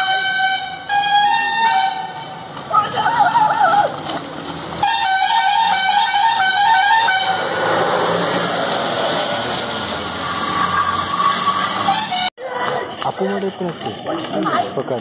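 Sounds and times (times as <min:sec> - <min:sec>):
horn steady note: 0:04.8 - 0:09.2.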